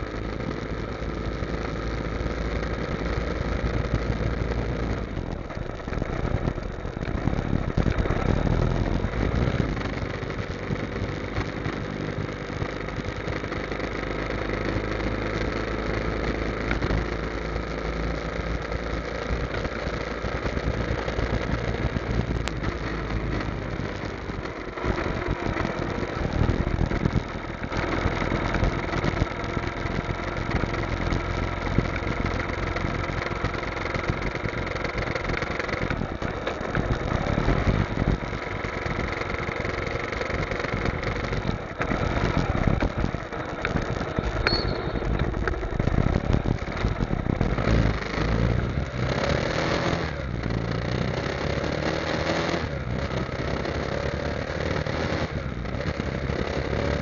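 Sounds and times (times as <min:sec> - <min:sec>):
motorcycle engine running: 0:00.0 - 0:57.0
road noise: 0:00.0 - 0:57.0
wind noise: 0:03.7 - 0:12.1, 0:19.4 - 0:50.7.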